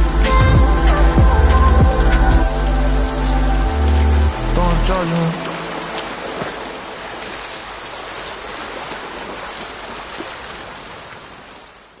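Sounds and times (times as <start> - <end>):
rain falling on water: 0.0 - 12.0.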